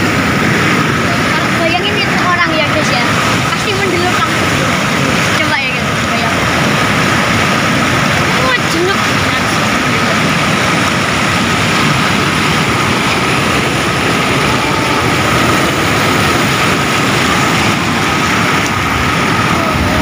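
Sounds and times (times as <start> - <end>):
water rushing over a weir: 0.0 - 20.0.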